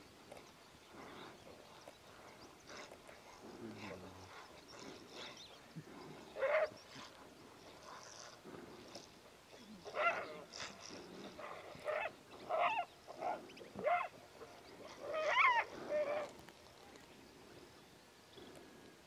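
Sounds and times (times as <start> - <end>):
animals calling in a fight: 9.8 - 16.4.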